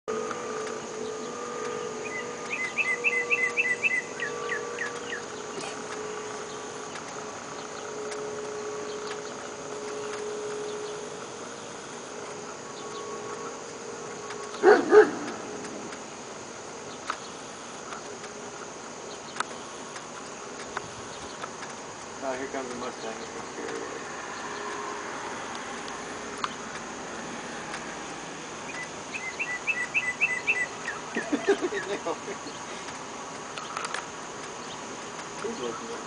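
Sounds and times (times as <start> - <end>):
insects droning: 0.1 - 36.0
dog barking: 14.6 - 15.3
fast high chirps: 28.7 - 32.6.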